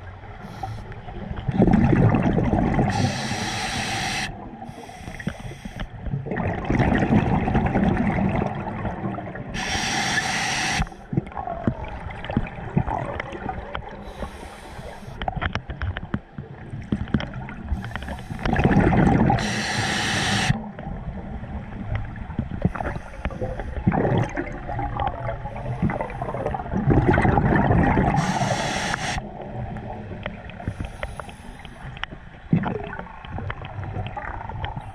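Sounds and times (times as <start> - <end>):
exhaled bubbles rushing: 1.2 - 3.4, 6.1 - 9.6, 11.1 - 14.0, 18.4 - 19.7, 20.3 - 28.6, 32.5 - 34.8
regulator air hiss: 2.9 - 5.9, 9.6 - 11.0, 14.1 - 15.2, 19.4 - 20.6, 28.2 - 29.2.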